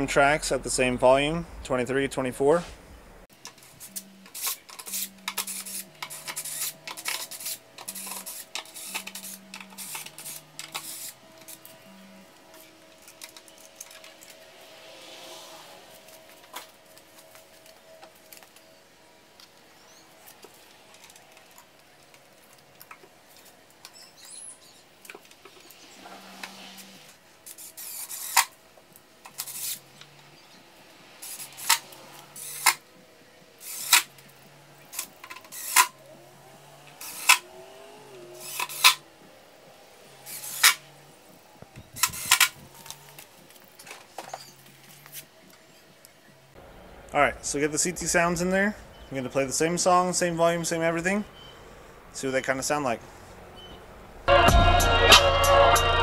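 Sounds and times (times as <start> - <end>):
power drill driving screws: 3.7 - 11.7, 25.6 - 28.5, 29.3 - 29.9, 31.2 - 32.8, 33.6 - 34.1, 34.9 - 36.0, 36.9 - 39.0, 40.2 - 40.8.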